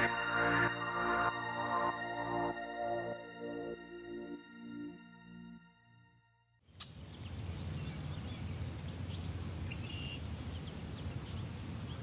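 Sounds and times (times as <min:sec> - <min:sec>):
soft ambient music: 0:00.0 - 0:06.4
small birds chirping: 0:06.7 - 0:12.0.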